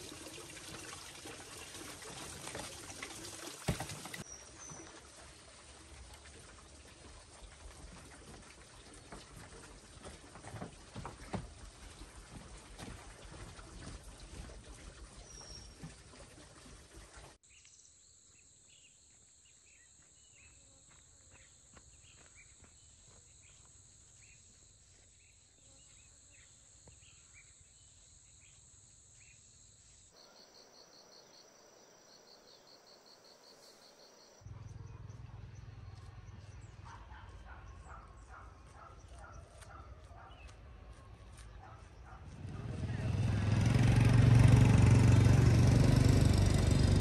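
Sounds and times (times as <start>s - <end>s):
insect drone: 17.7s - 34.4s
pulsing insect chirp: 17.8s - 34.4s.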